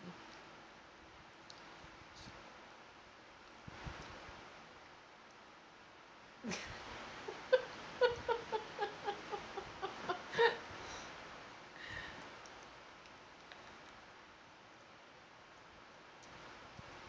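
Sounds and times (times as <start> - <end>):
young child giggling: 6.5 - 10.7.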